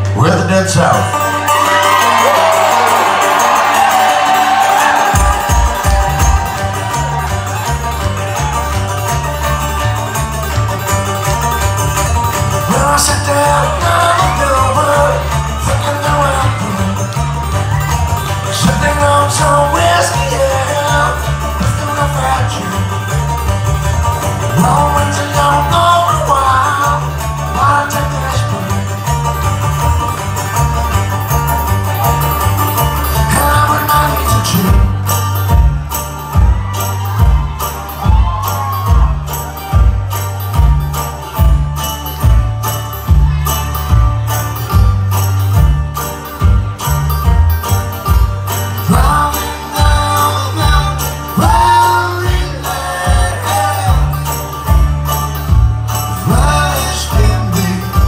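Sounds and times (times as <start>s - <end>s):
bluegrass string band playing: 0.0s - 58.0s
heavy stomping beats: 2.0s - 9.6s
person singing: 12.6s - 17.3s, 18.4s - 23.0s, 24.4s - 29.2s, 33.0s - 35.2s, 48.6s - 54.8s, 56.0s - 58.0s.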